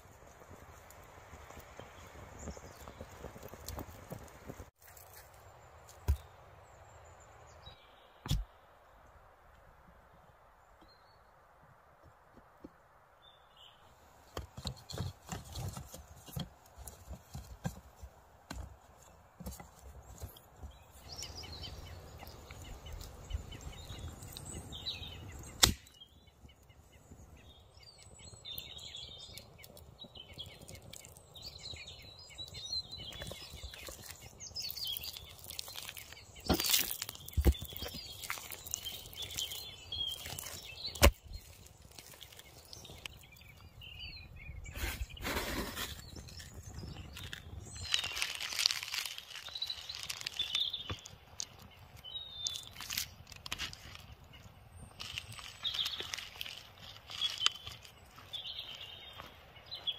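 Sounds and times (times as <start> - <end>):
small birds chirping: 0.0 - 8.7, 10.1 - 59.9
dry twigs snapping: 21.1 - 26.1, 28.5 - 43.6, 46.4 - 59.3.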